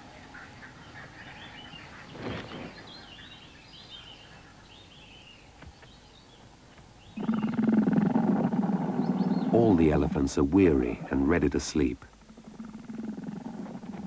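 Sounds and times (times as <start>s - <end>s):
bird chirps: 0.3s - 7.7s, 8.8s - 10.0s.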